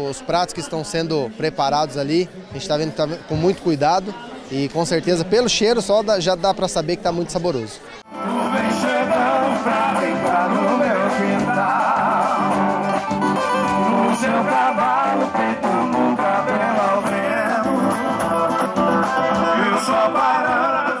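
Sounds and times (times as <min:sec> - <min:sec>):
song with singing and guitars: 0:08.1 - 0:21.0.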